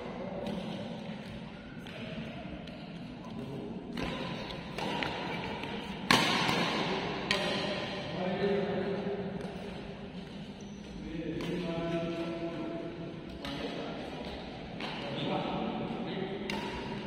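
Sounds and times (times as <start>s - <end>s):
badminton rackets hitting shuttlecock: 0.4s - 8.1s, 16.4s - 17.0s.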